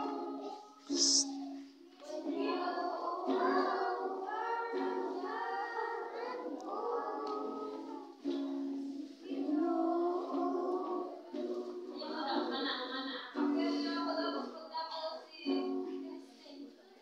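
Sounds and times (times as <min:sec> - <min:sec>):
group of voices singing: 0:00.0 - 0:12.6.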